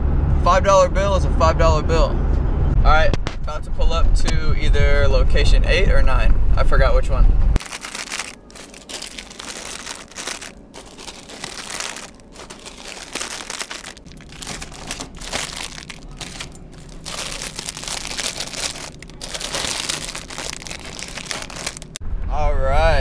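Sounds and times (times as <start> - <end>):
plastic snack bags crinkling: 7.6 - 22.0.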